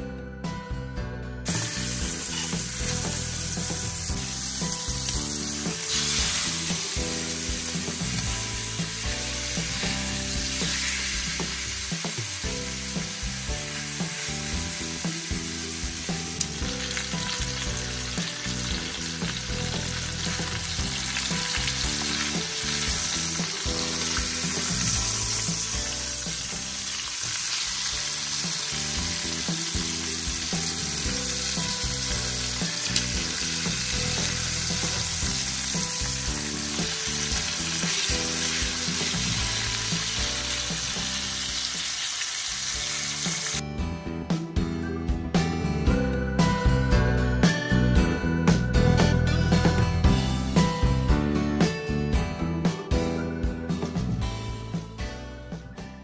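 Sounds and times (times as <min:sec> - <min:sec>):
steaks sizzling in a pan: 0:01.5 - 0:43.6.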